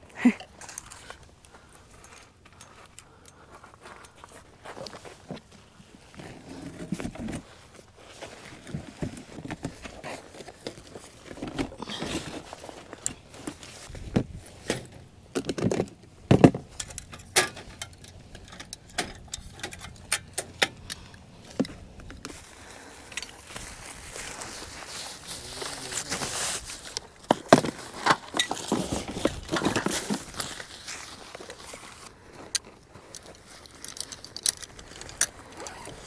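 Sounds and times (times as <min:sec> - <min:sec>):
tent fabric rustling: 0:04.0 - 0:14.7, 0:22.3 - 0:27.0, 0:27.9 - 0:36.0
metallic clinks and knocks: 0:16.7 - 0:20.9.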